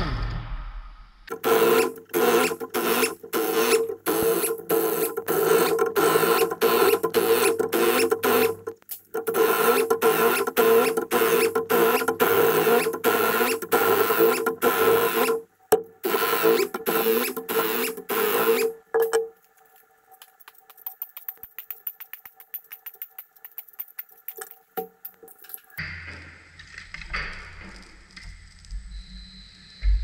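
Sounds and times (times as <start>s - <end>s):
pneumatic impact wrench hammering: 1.3s - 8.6s, 9.2s - 15.4s, 16.0s - 18.8s.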